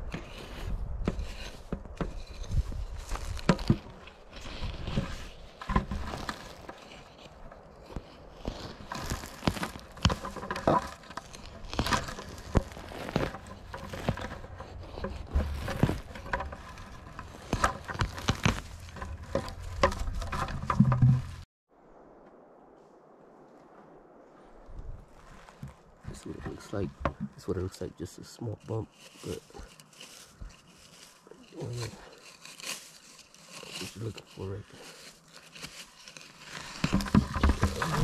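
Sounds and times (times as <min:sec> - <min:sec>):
digging tool scraping soil: 0:00.0 - 0:21.5, 0:25.6 - 0:38.0.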